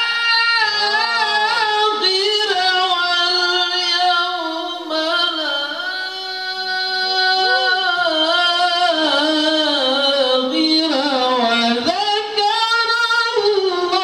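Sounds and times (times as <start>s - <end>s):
man reciting in a high melodic voice: 0.0s - 14.0s.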